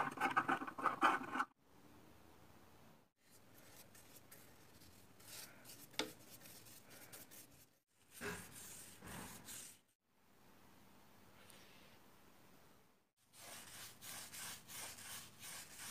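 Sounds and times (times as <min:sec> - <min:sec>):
brush rubbing on wood: 0:03.6 - 0:09.8, 0:13.4 - 0:15.9.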